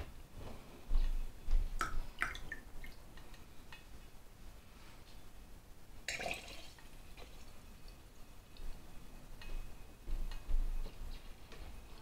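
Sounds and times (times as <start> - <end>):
water trickling into a glass: 6.1 - 6.8.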